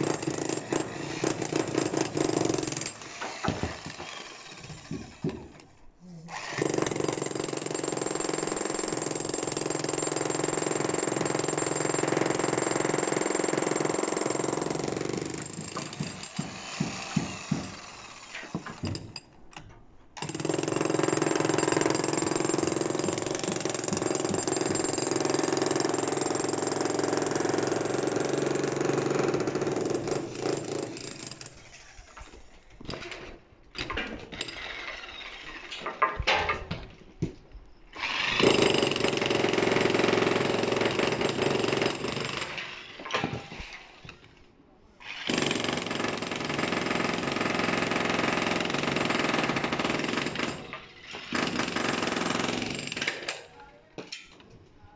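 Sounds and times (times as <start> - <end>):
demolition hammer chiselling concrete: 0.0 - 5.6, 6.3 - 19.2, 20.2 - 31.6, 38.0 - 42.8, 45.2 - 53.4.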